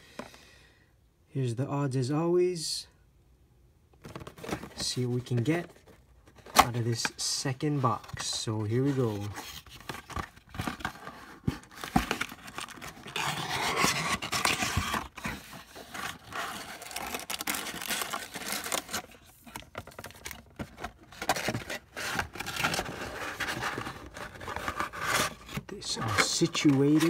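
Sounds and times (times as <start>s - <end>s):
cardboard box rubbing and scraping: 10.8s - 19.0s, 21.2s - 27.0s.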